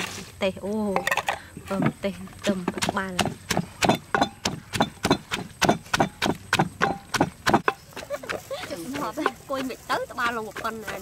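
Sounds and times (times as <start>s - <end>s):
pestle pounding in a mortar: 2.4s - 11.0s.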